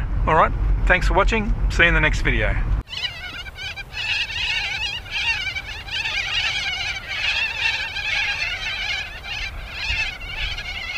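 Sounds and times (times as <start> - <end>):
flock of birds chirping: 2.8 - 10.9.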